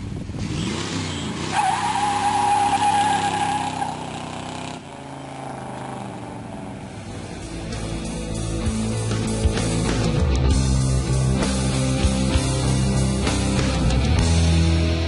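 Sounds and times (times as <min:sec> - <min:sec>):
car engine revving: 0:00.2 - 0:10.2
tyres squealing: 0:01.5 - 0:04.7.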